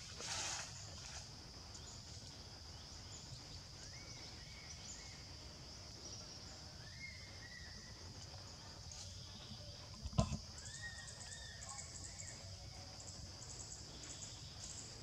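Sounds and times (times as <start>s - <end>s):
insects droning high-pitched: 0.0s - 15.0s.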